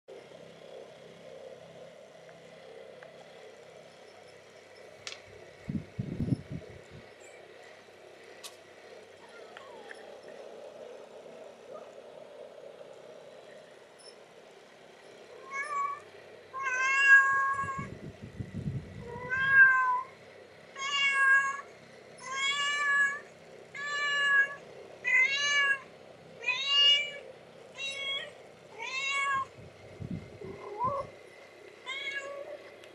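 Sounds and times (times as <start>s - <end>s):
kittens mewing: 9.2s - 10.2s, 15.4s - 17.9s, 30.4s - 31.2s, 31.8s - 32.7s.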